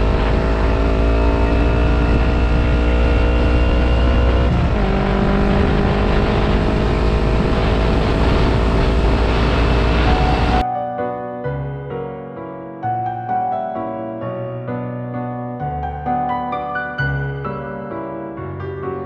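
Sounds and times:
motorcycle engine running: 0.0s - 10.6s
wind rumble on microphone: 0.0s - 10.6s.

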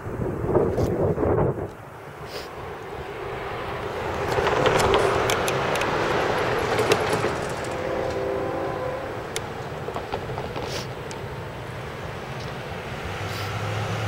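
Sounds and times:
vehicle passing by: 2.0s - 14.0s
clicks and rattles near microphone: 4.2s - 7.8s.

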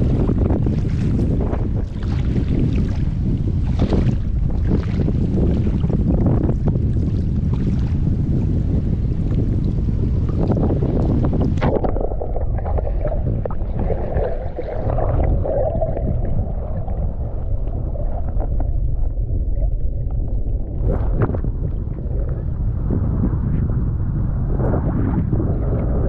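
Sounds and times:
muffled underwater rumble: 0.0s - 26.0s
water splashing: 10.4s - 22.6s.

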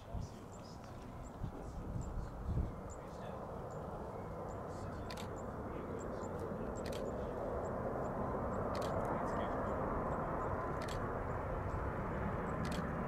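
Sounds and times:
jet airliner rumble with whine: 0.0s - 13.0s
faint sharp ticks: 12.6s - 12.9s.

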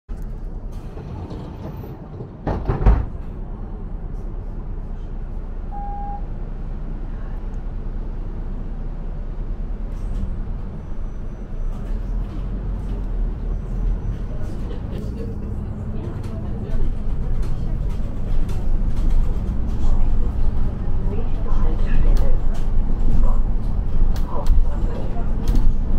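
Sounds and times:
bus interior rumble: 0.1s - 25.9s
short electronic beep: 5.7s - 6.3s.

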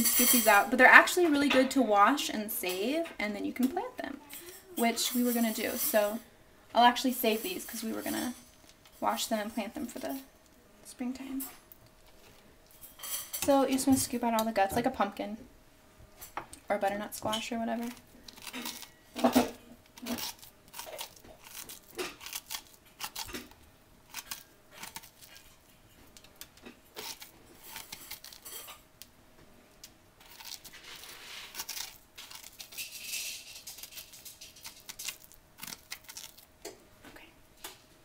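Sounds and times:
spoon scraping squash: 16.8s - 28.8s, 30.2s - 36.5s.

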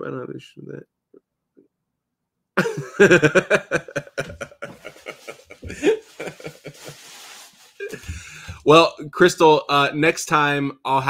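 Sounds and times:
person laughing: 2.6s - 8.5s.

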